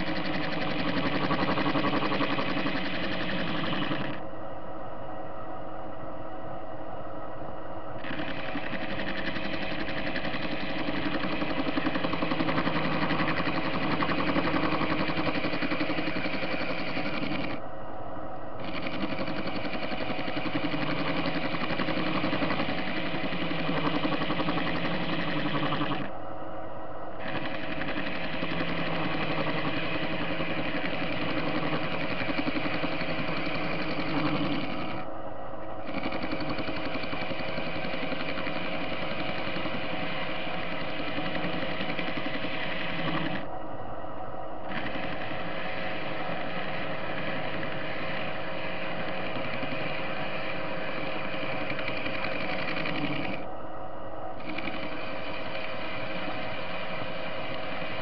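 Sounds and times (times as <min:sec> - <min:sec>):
lathe machine hum: 0:00.0 - 0:05.2, 0:07.8 - 0:58.0.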